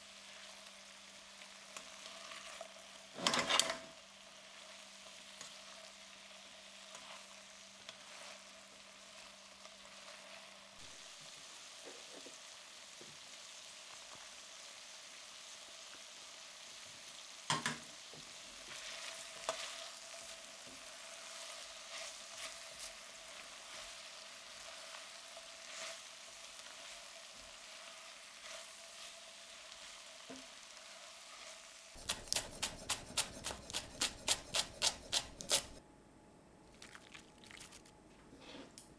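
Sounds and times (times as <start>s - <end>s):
food sizzling in a pan: 0.0s - 35.8s
knife chopping on wooden board: 32.0s - 35.8s
metal spatula scraping and tapping: 32.0s - 35.8s.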